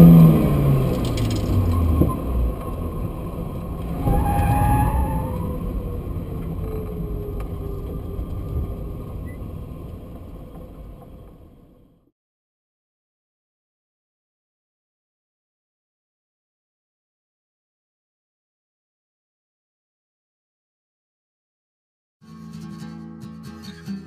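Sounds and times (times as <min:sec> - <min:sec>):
car engine and road noise: 0:00.0 - 0:12.1.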